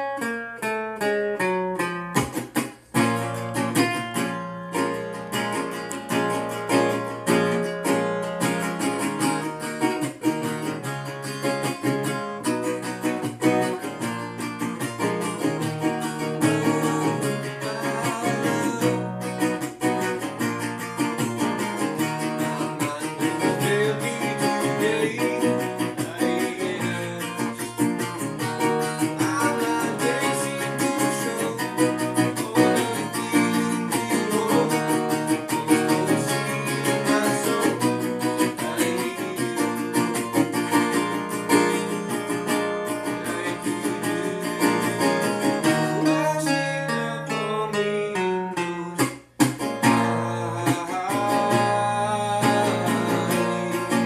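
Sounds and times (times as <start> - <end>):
resonator guitar folk playing: 0.0 - 54.0
man singing: 13.6 - 20.6, 21.2 - 54.0.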